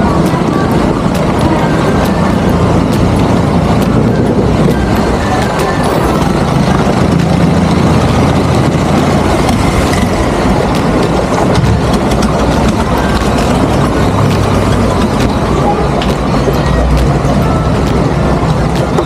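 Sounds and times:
loud rushing noise: 0:00.0 - 0:19.0
motor engine running: 0:00.0 - 0:19.0.

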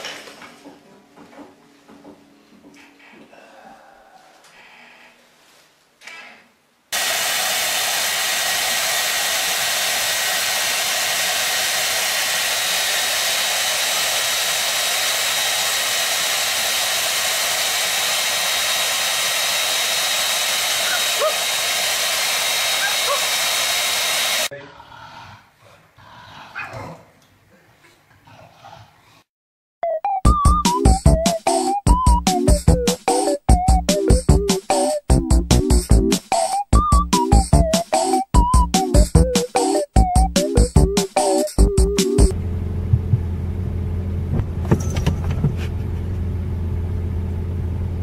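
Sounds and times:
hair dryer running: 0:06.9 - 0:24.5, 0:42.3 - 0:43.4.

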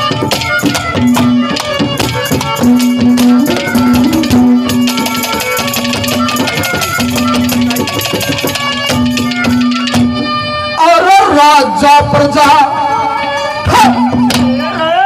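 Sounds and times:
fast steady drumming: 0:00.0 - 0:10.4
melody instrument holding long notes: 0:00.0 - 0:15.0.

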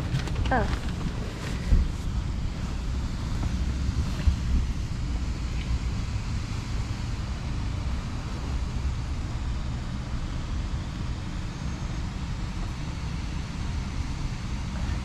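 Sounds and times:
wind buffeting microphone: 0:00.0 - 0:11.4
street traffic: 0:00.0 - 0:15.0.

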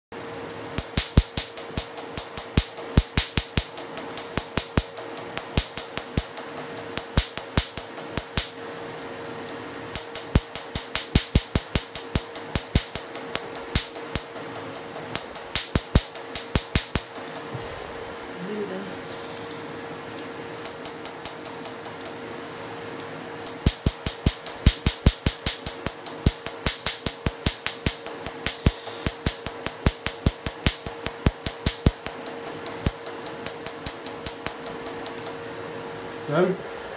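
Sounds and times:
steady hum: 0:00.1 - 0:36.9
laser firing sharp snaps: 0:00.8 - 0:08.6, 0:09.9 - 0:17.5, 0:20.6 - 0:22.2, 0:23.4 - 0:35.4.

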